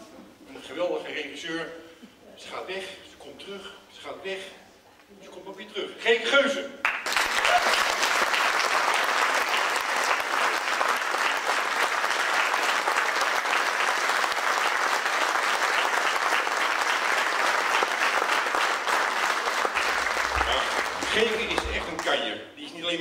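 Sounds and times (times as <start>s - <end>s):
audience applauding: 6.8s - 22.2s.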